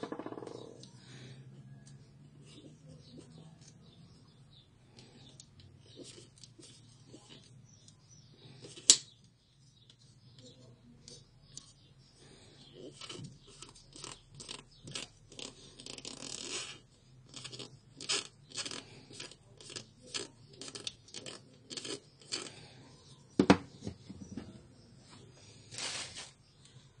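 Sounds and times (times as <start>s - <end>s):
knock on wooden desk: 23.4s - 24.2s.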